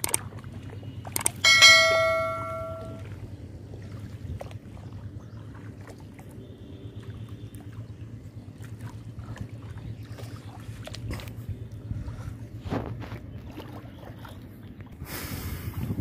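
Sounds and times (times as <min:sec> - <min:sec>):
low outdoor rumble: 0:00.0 - 0:16.0
bell chime: 0:01.4 - 0:03.0.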